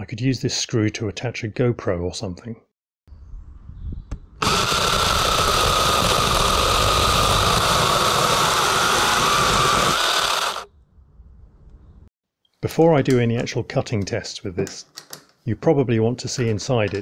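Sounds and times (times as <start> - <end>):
mini chainsaw cutting log: 4.4 - 10.7.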